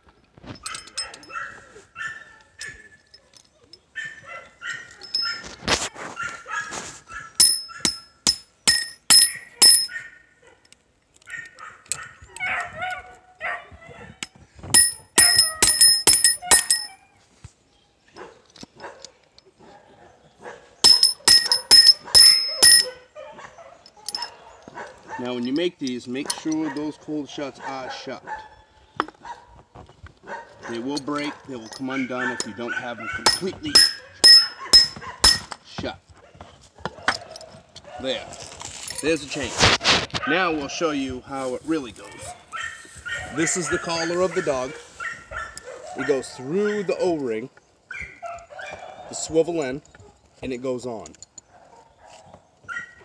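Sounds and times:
dog barking and whining: 0:00.6 - 0:08.0, 0:09.3 - 0:10.6, 0:11.2 - 0:14.3, 0:15.1 - 0:17.2, 0:18.2 - 0:25.3, 0:27.5 - 0:29.6, 0:30.2 - 0:35.4, 0:42.0 - 0:46.9, 0:47.9 - 0:49.1, 0:51.5 - 0:53.0
hammer striking metal: 0:07.4 - 0:09.9, 0:14.7 - 0:16.9, 0:20.8 - 0:22.9, 0:33.2 - 0:35.6.

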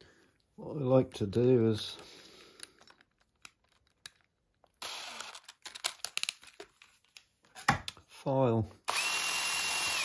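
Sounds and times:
hands rustling tools and parts: 0:00.2 - 0:08.1.

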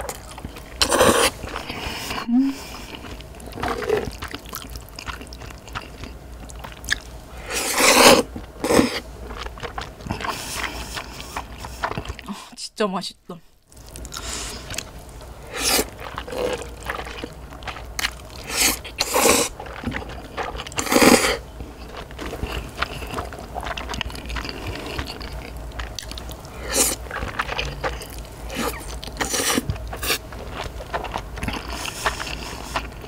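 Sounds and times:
chewing and mouth sounds: 0:00.0 - 0:12.4, 0:13.7 - 0:33.0
noodle slurping: 0:15.4 - 0:30.3.

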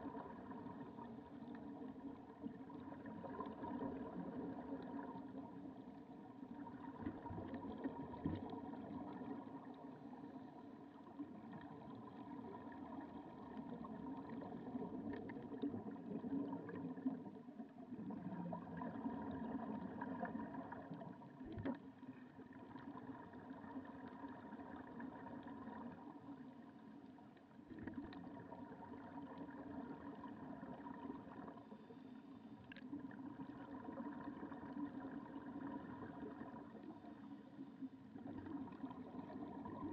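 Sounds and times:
muffled underwater motor hum: 0:00.0 - 0:39.9
faint clicks: 0:19.7 - 0:22.8, 0:32.5 - 0:33.2.

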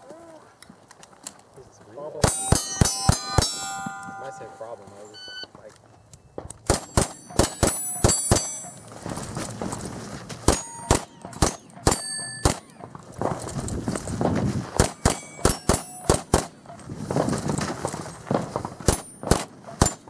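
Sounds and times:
steel plates ringing: 0:02.2 - 0:05.3, 0:06.8 - 0:08.9, 0:10.5 - 0:12.8, 0:14.9 - 0:16.3.

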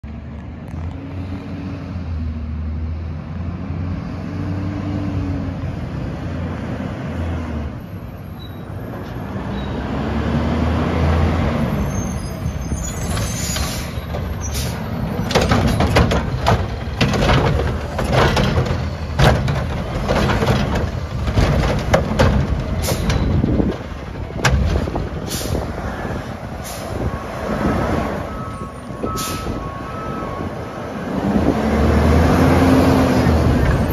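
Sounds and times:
diesel engine revving: 0:01.0 - 0:08.0, 0:08.9 - 0:33.9
air brakes hissing: 0:11.8 - 0:15.2, 0:25.2 - 0:25.8, 0:26.6 - 0:27.2, 0:29.0 - 0:29.6
metallic clanks and bangs: 0:13.0 - 0:25.6.

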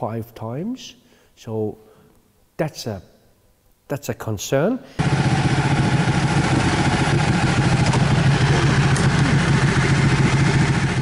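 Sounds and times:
motorcycle engine running: 0:05.0 - 0:11.0.

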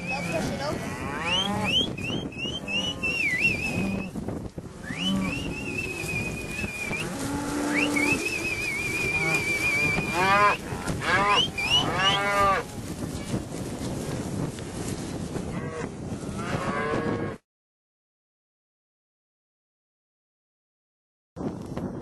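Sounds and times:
cattle mooing and bawling: 0:00.0 - 0:04.1, 0:04.8 - 0:12.7
high wavering whistles: 0:01.3 - 0:04.1, 0:04.8 - 0:07.1, 0:07.7 - 0:10.2, 0:11.3 - 0:12.0.

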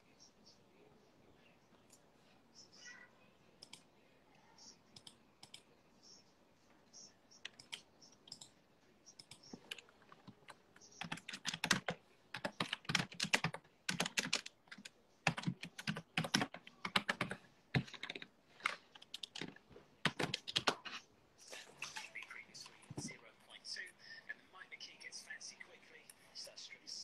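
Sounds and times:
typing on keyboard: 0:07.4 - 0:08.5, 0:09.2 - 0:21.0.

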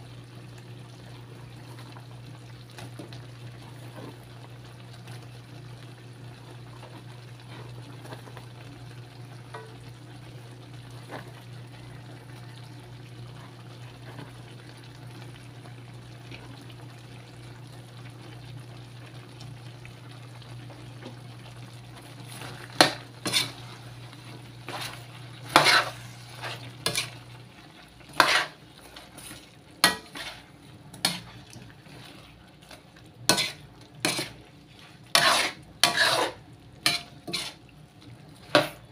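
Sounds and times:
food sizzling in a wok: 0:00.0 - 0:38.9
spatula scraping a pan: 0:22.2 - 0:27.3, 0:28.0 - 0:37.7, 0:38.4 - 0:38.9.

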